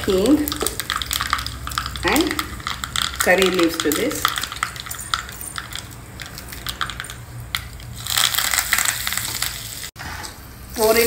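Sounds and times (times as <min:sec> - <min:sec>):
mustard seeds crackling in oil: 0:00.0 - 0:09.9
leaves sizzling in hot oil: 0:07.9 - 0:11.0.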